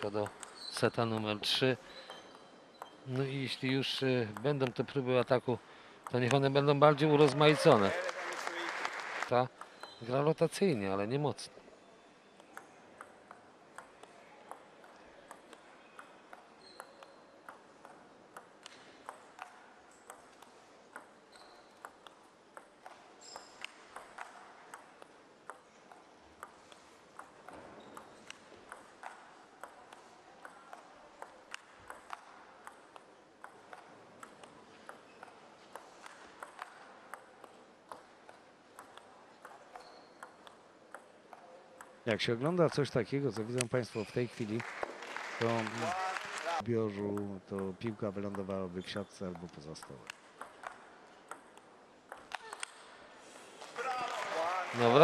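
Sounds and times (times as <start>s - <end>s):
faint hall ambience: 0.0s - 55.0s
table tennis ball clicks: 12.4s - 42.0s, 49.3s - 52.9s.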